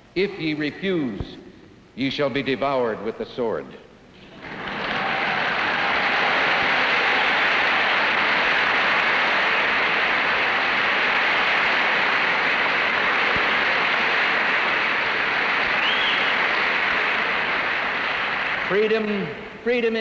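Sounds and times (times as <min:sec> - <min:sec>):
large audience applauding: 0:04.3 - 0:19.4.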